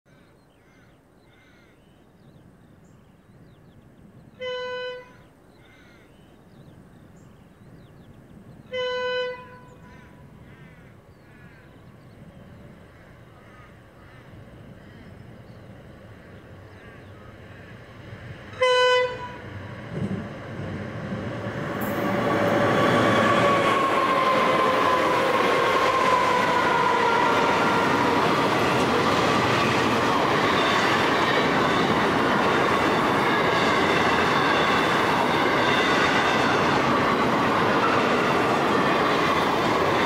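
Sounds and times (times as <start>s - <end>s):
locomotive horn blasts: 4.4s - 5.2s, 8.7s - 9.9s, 18.6s - 19.5s
train rumbling: 7.7s - 40.0s.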